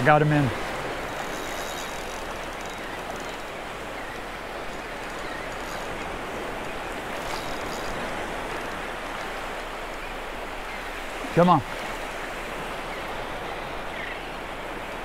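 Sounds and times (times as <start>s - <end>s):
surf washing up beach: 0.0s - 15.0s
faint clicks: 1.1s - 9.3s.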